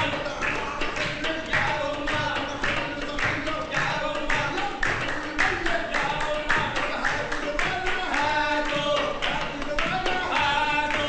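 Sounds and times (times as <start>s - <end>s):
handclaps: 0.0s - 11.0s
upbeat song with singing: 0.0s - 11.0s.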